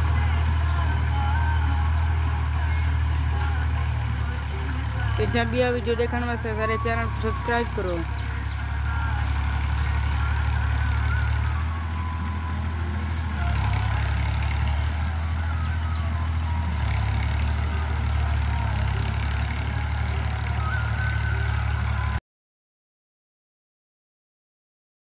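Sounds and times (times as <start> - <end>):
tractor engine droning: 0.0 - 22.2.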